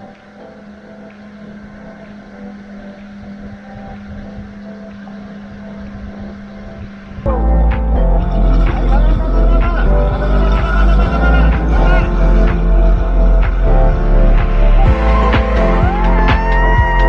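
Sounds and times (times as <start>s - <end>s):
wind on microphone: 0.0s - 17.0s
motorboat engine running: 0.5s - 16.3s
loud music: 7.3s - 17.0s.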